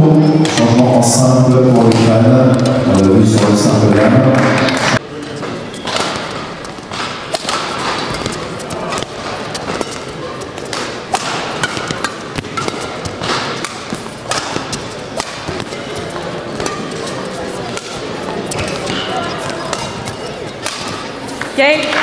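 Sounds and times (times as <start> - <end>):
racket striking shuttlecock: 0.4 - 0.8, 1.8 - 3.8, 4.4 - 21.6.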